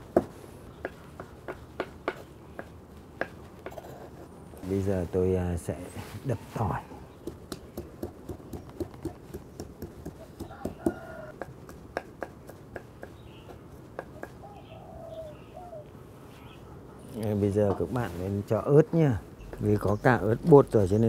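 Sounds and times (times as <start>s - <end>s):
knife chopping on wooden board: 7.2s - 14.4s
faint animal calls: 14.1s - 17.2s.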